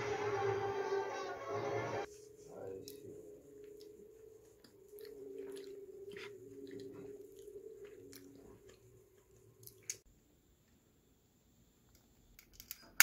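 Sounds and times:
person chewing: 3.5s - 10.0s.

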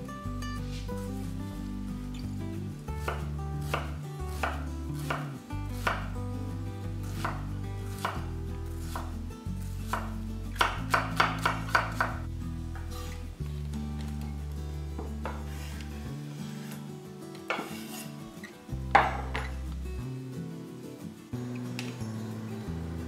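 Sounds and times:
knife chopping on wooden board: 3.0s - 6.1s, 7.2s - 8.3s, 9.9s - 12.2s, 17.5s - 18.0s, 19.0s - 19.5s.

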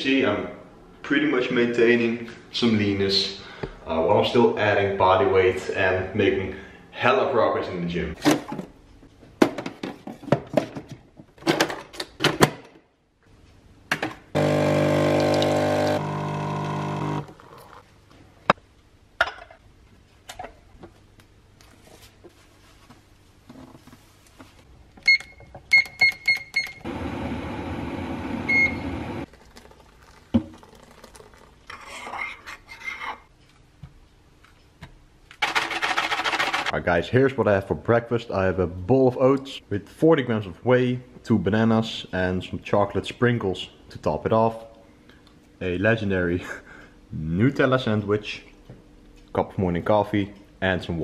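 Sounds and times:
appliance hum: 14.3s - 17.8s, 26.6s - 31.5s
espresso pump buzzing: 14.4s - 17.8s.

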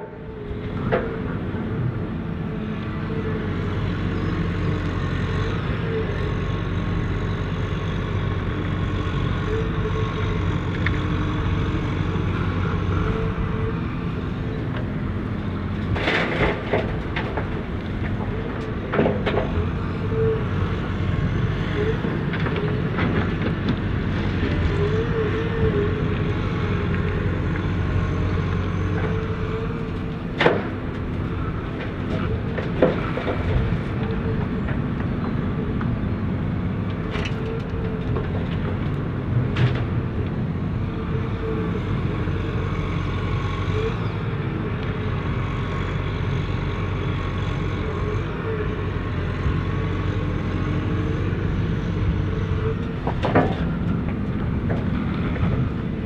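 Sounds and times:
diesel engine running: 0.0s - 56.0s.

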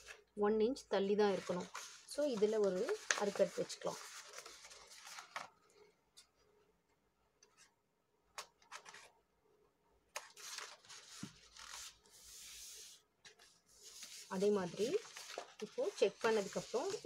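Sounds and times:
faint paper rustling and sliding: 1.1s - 6.4s, 10.1s - 17.0s.

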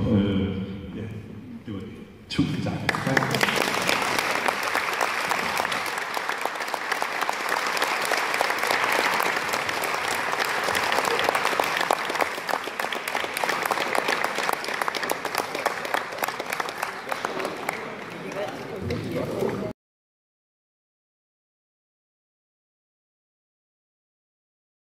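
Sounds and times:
audience applauding: 2.6s - 19.6s.

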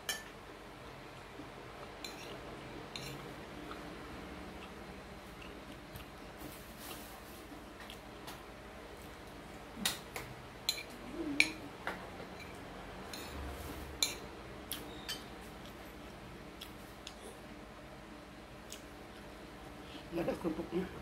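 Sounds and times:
metal spoon scraping a plate: 2.0s - 3.2s, 12.4s - 13.4s.

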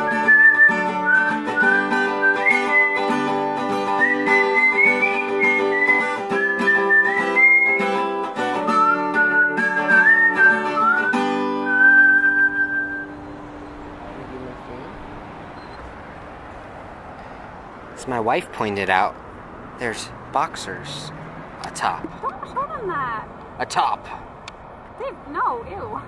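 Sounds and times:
plucked acoustic guitar chords: 0.0s - 13.5s
whistled melody: 0.0s - 13.8s.

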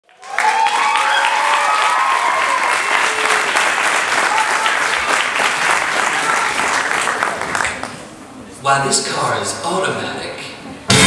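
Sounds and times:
audience applauding: 0.0s - 8.1s
voices cheering: 0.1s - 7.4s.

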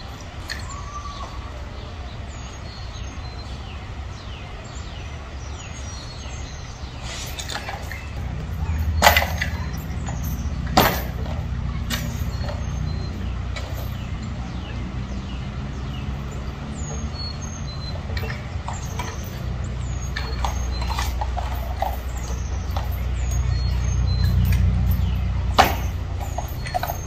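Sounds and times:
steady low rumble: 8.0s - 26.7s.

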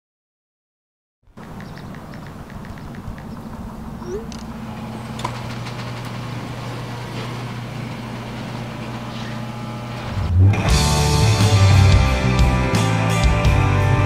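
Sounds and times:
vehicle engine idling: 1.3s - 12.2s.

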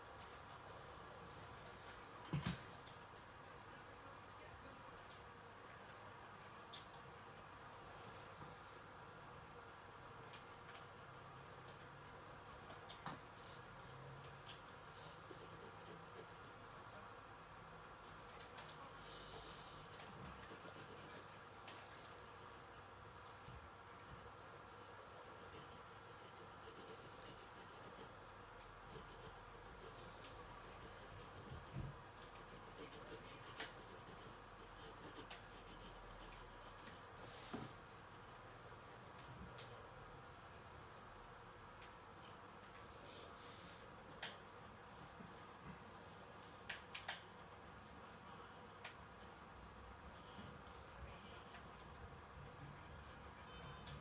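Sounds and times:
pencil scratching on paper: 8.4s - 17.0s, 18.6s - 28.1s, 28.7s - 37.4s, 47.6s - 51.5s, 53.0s - 53.8s.

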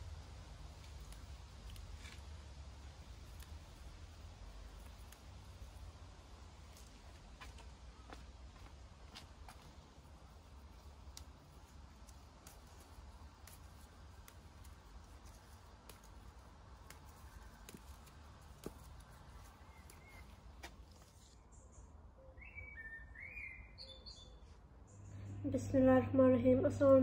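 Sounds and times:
stems snapping: 0.6s - 6.0s, 10.6s - 21.3s
bird chirping: 19.4s - 20.5s, 21.1s - 25.8s.

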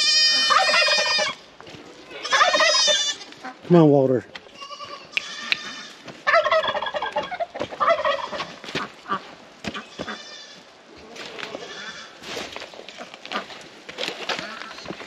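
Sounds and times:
turkeys gobbling: 0.0s - 1.4s, 2.2s - 3.7s, 5.2s - 10.2s.

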